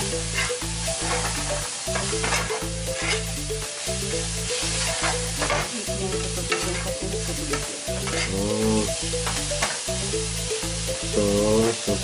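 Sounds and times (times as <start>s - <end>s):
onions sizzling in oil: 0.0s - 12.0s
utensil scraping and tapping pan: 0.3s - 3.3s, 6.4s - 6.9s.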